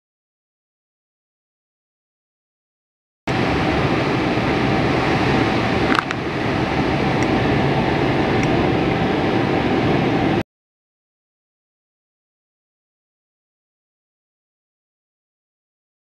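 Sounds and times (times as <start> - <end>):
ventilation fan hum: 3.3 - 10.4.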